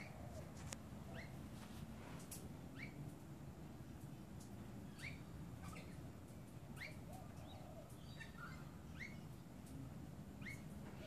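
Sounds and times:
lorikeets chirping: 1.0s - 1.4s, 2.7s - 3.1s, 4.8s - 9.5s, 10.4s - 11.0s.

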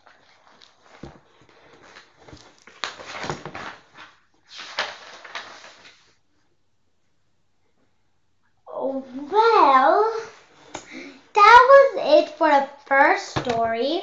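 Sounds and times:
book pages and covers rustling: 0.0s - 6.2s.

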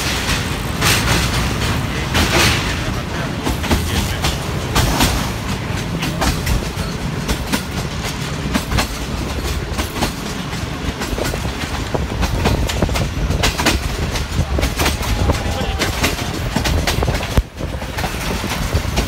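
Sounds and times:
train coach rumble: 0.0s - 19.0s
wheels clicking over rails: 0.0s - 19.0s.

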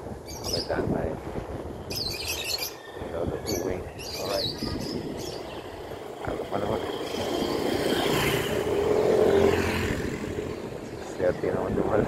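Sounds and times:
vehicle engine passing by: 5.1s - 11.2s.

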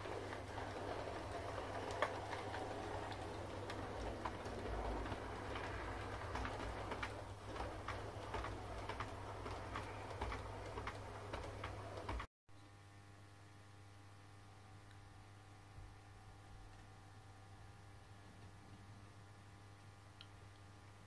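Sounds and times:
model train motor hum: 0.0s - 11.0s
wheels clicking over rail joints: 0.0s - 12.3s.

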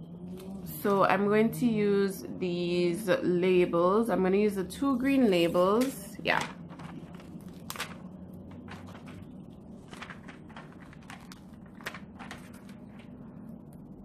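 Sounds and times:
faint low hum: 0.0s - 14.0s
paper sticker sheet rustling: 5.0s - 14.0s.

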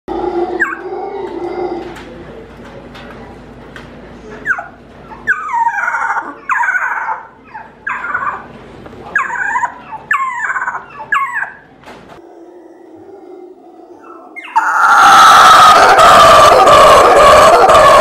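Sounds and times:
young howler monkey calls: 4.5s - 8.5s, 9.2s - 11.6s, 12.9s - 18.0s.

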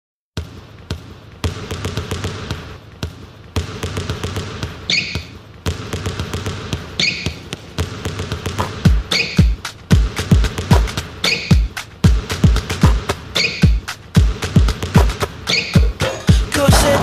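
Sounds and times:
basketball bouncing: 0.4s - 16.0s
sneaker squeaks: 4.7s - 5.4s, 6.8s - 7.6s, 8.6s - 9.6s, 11.2s - 11.7s, 13.3s - 13.8s, 15.4s - 16.3s.

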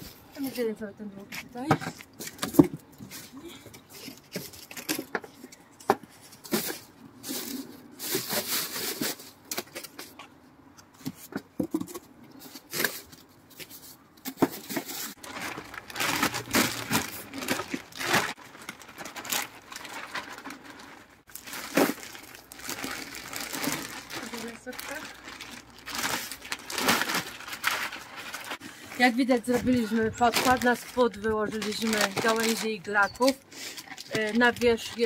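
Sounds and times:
cardboard rustling and crinkling: 10.9s - 35.0s.

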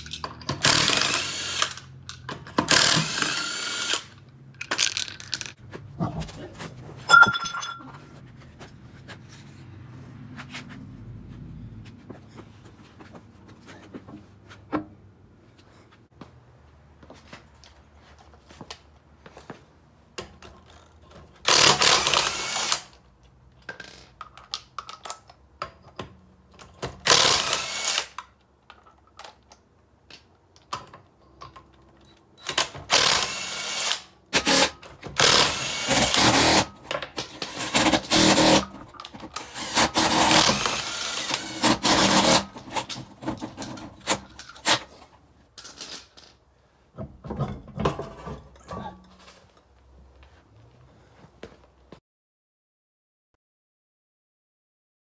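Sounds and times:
impact wrench on lug nuts: 0.0s - 5.6s, 20.3s - 23.0s, 26.5s - 28.4s, 32.4s - 46.2s.

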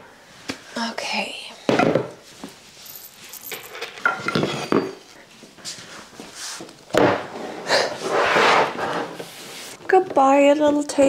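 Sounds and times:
rustling: 2.2s - 9.8s.

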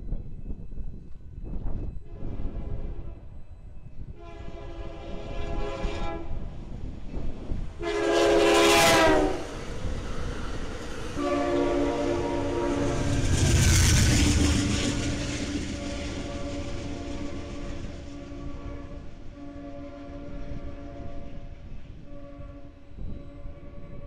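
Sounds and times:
rumble of passing train cars: 0.0s - 24.0s
train air horn blasts: 4.1s - 6.6s, 7.8s - 24.0s.

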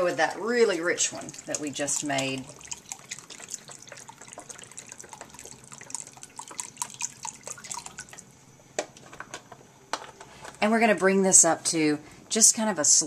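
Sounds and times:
liquid pouring and splashing into pot: 0.6s - 8.3s.

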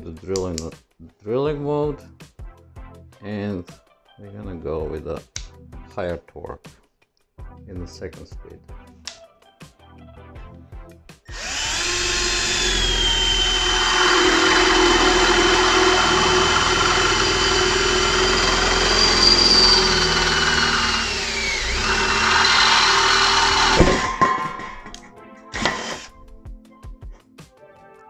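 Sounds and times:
cordless drill cutting metal: 11.3s - 26.3s.

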